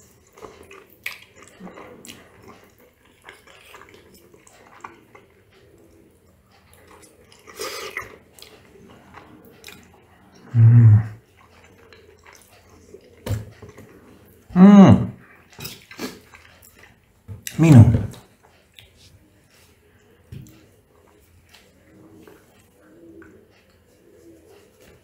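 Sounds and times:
chewing: 0.0 - 14.5, 15.2 - 25.0
person humming mmm: 10.5 - 11.2, 14.5 - 15.2.

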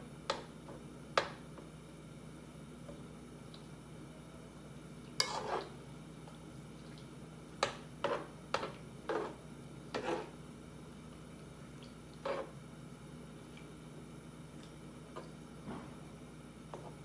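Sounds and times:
utensil scraping a cooking pot: 5.2 - 5.8, 8.0 - 10.4, 12.2 - 12.6.

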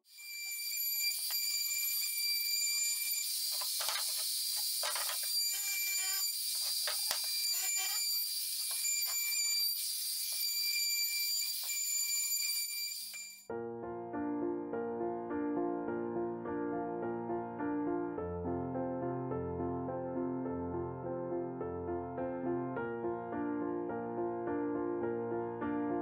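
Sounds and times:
router whining: 1.0 - 10.5.

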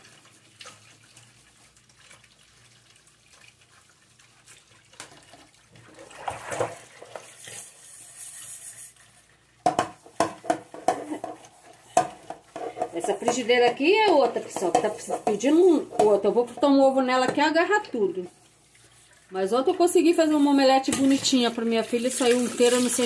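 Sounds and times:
sponge scrubbing dishes: 0.0 - 23.0
tap running into a sink: 9.6 - 17.5.

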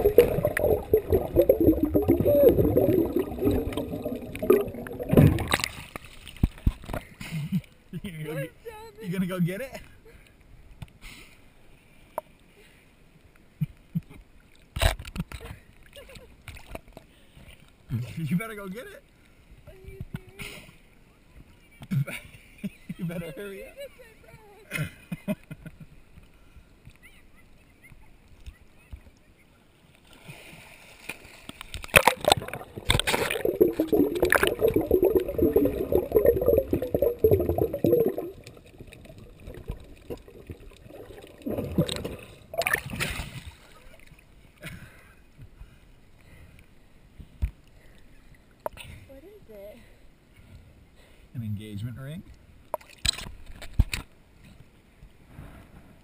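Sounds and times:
muffled underwater bubbling: 0.0 - 5.8, 31.9 - 43.0
sharp splash: 0.0 - 6.7, 30.8 - 44.0
water lapping and splashing: 0.0 - 7.2, 30.0 - 44.6.

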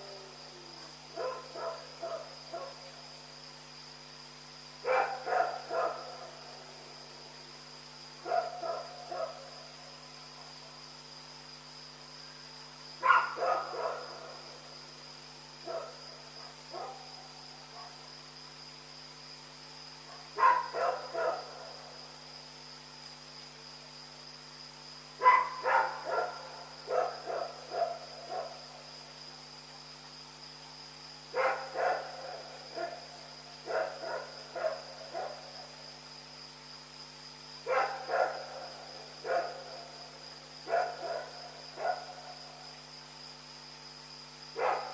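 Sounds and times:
dog barking: 1.2 - 2.9, 4.8 - 6.4, 8.2 - 9.5, 13.0 - 14.4, 15.7 - 17.1, 17.7 - 18.0, 20.1 - 21.6, 25.2 - 28.6, 31.4 - 33.0, 33.6 - 35.5, 37.6 - 39.8, 40.6 - 42.4, 44.6 - 44.9.

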